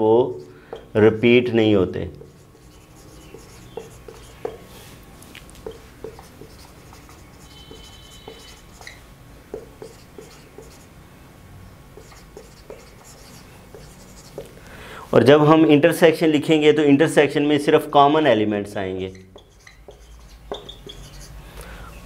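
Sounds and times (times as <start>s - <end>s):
marker writing on whiteboard: 0.0s - 1.0s, 2.1s - 11.0s, 11.9s - 14.6s, 19.1s - 21.4s.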